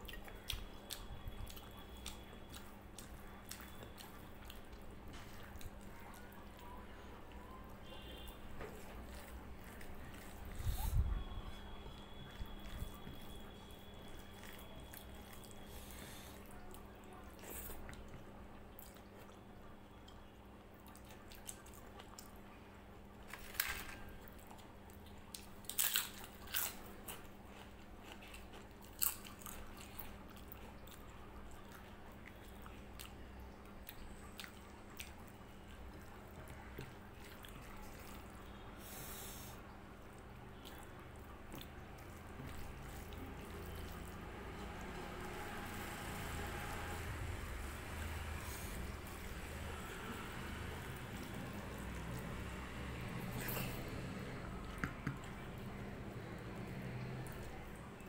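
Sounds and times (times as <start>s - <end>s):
chewing: 0.0s - 19.4s, 20.0s - 22.4s, 23.4s - 45.3s, 48.0s - 58.0s
faint steady hum: 0.0s - 58.0s.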